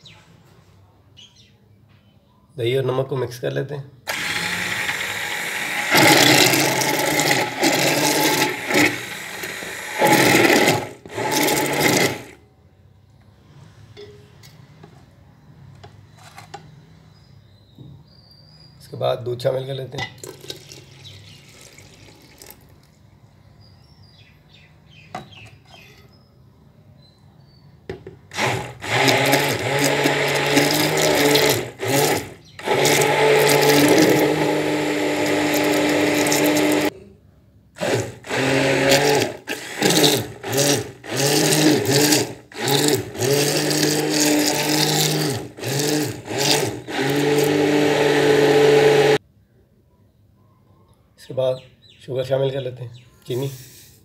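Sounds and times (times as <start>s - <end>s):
hand blender running: 4.1s - 12.4s, 28.3s - 36.9s, 37.8s - 49.2s.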